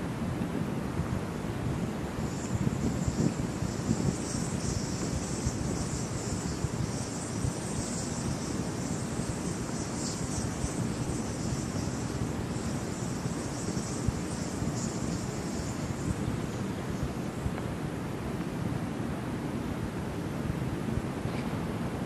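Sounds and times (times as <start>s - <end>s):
wind buffeting microphone: 0.0s - 22.0s
insect chirring: 2.1s - 17.5s.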